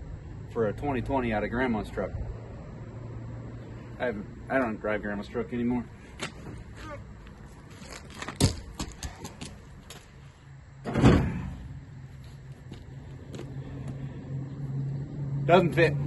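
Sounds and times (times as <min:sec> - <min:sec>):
steady low hum: 0:00.0 - 0:16.0
thump: 0:10.8 - 0:11.7.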